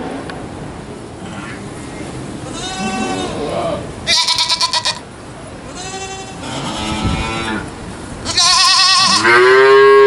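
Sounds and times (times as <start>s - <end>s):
goat bleating: 2.5s - 5.1s, 5.7s - 9.5s.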